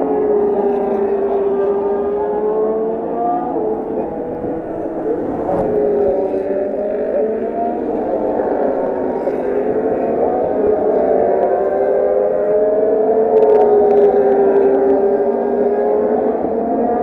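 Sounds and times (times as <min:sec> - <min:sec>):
racing car engines passing: 0:00.0 - 0:17.0.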